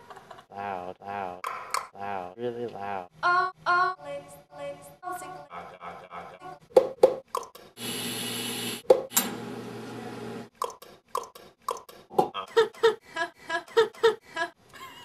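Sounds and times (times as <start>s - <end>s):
hollow mouth pops: 10.6s - 12.4s.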